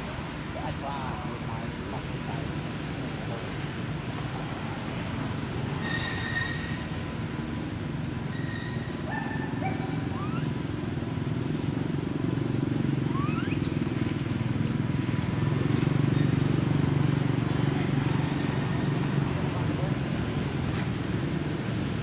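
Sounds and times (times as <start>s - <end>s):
short rising chirps: 13.1s - 13.8s.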